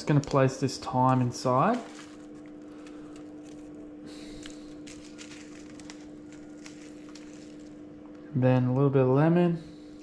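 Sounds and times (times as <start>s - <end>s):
steady low hum: 0.0s - 10.0s
hands rustling herbs: 1.1s - 7.8s.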